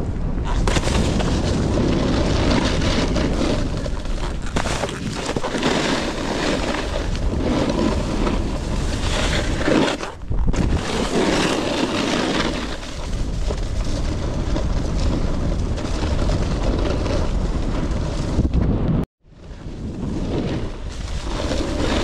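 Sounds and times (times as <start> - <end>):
wind buffeting microphone: 0.0 - 11.8
snowboard scraping on snow: 0.4 - 22.0.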